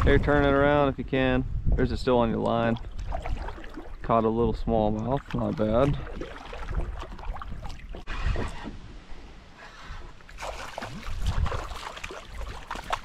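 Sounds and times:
wind rumble on microphone: 0:00.0 - 0:09.0, 0:10.8 - 0:13.0
water sloshing: 0:02.2 - 0:08.7, 0:10.0 - 0:13.0
fish splashing at surface: 0:10.3 - 0:13.0.

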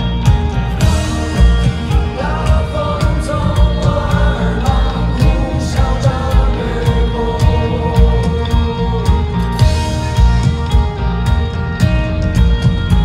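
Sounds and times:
rock band playing: 0:00.0 - 0:13.0
man singing: 0:01.3 - 0:09.6.

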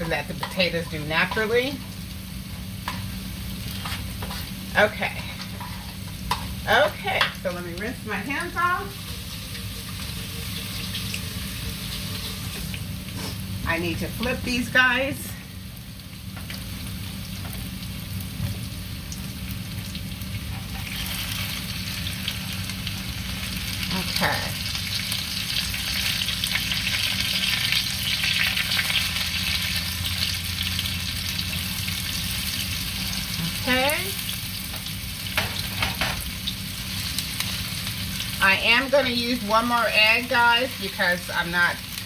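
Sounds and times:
potato patties sizzling in oil: 0:00.0 - 0:42.0
spatulas scraping a pan: 0:03.7 - 0:06.4.

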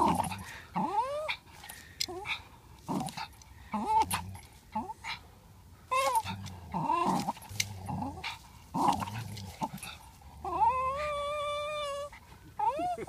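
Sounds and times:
dog whining: 0:00.0 - 0:01.4, 0:05.9 - 0:13.0
dogs growling: 0:00.0 - 0:01.5, 0:02.1 - 0:05.2, 0:05.9 - 0:13.0.

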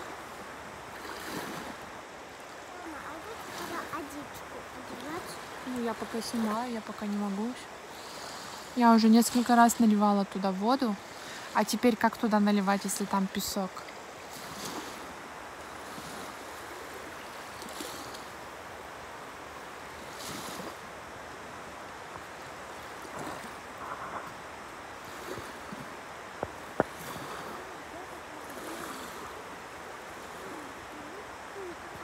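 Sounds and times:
small waves washing onto sand: 0:00.0 - 0:32.0
wind on microphone: 0:14.2 - 0:32.0.

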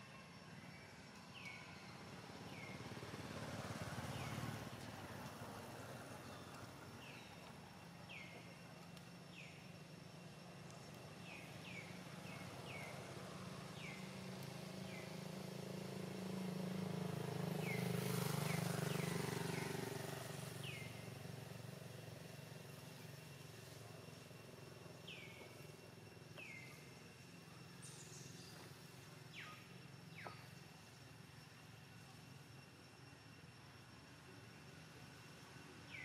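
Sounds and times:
vehicle engine passing: 0:13.0 - 0:21.5.

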